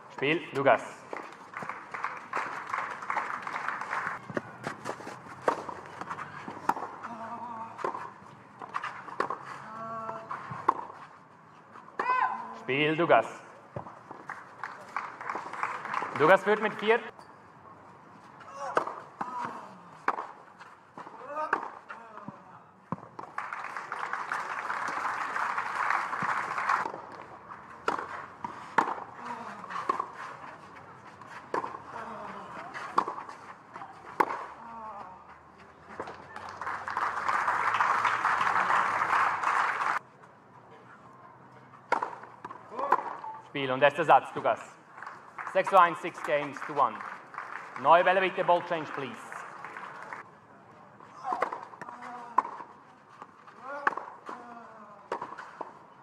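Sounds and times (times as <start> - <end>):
spectators applauding: 1.5 - 4.2, 14.3 - 16.3, 23.3 - 26.9, 36.2 - 40.0, 45.0 - 50.2
tennis rackets hitting ball: 3.8 - 11.0, 18.6 - 21.9, 26.2 - 34.6, 41.8 - 43.3, 51.2 - 52.7, 53.6 - 54.4, 55.1 - 55.8.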